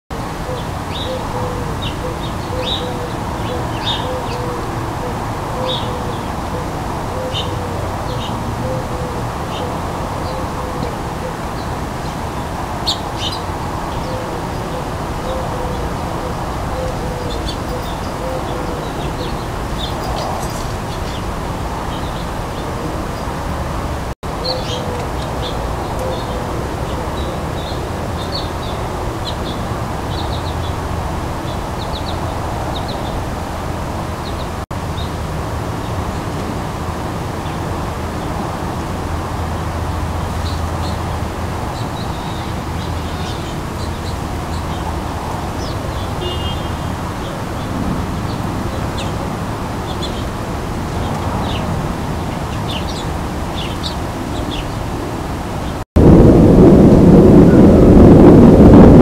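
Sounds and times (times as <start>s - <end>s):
small birds chirping: 0.3s - 23.5s, 49.9s - 54.9s.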